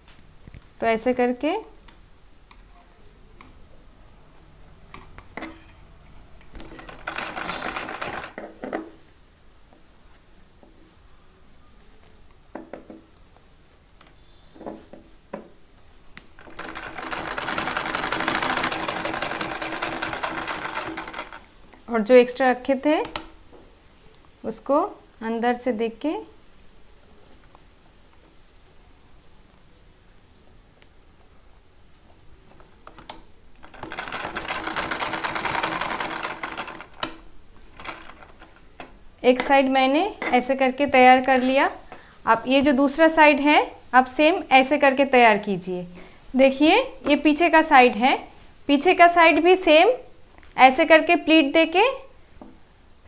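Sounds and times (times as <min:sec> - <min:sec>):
sewing machine stitching: 0:06.6 - 0:08.4, 0:16.4 - 0:21.5, 0:33.6 - 0:37.1.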